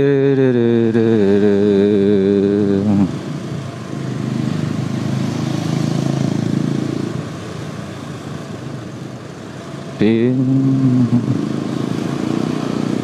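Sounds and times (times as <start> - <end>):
wavering hummed drone: 0.0 - 3.2, 10.0 - 11.5
motorcycle engine rumble: 0.0 - 13.0
wind and road noise: 0.0 - 13.0.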